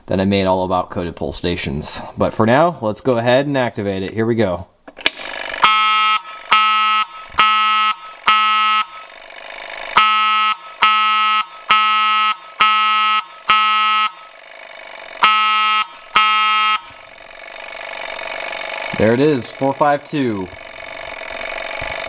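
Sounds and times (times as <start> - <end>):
fire alarm horn blasts: 5.6 - 9.1, 10.0 - 14.4, 15.2 - 17.1
faint mechanical whirr: 6.2 - 22.0.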